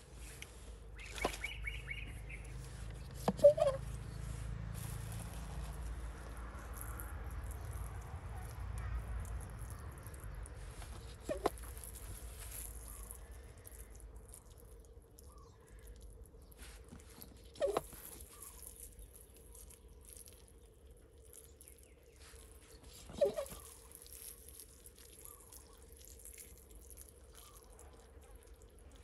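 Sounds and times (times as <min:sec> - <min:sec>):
hand-pump sprayer handling: 0:02.4 - 0:04.2, 0:10.7 - 0:12.3.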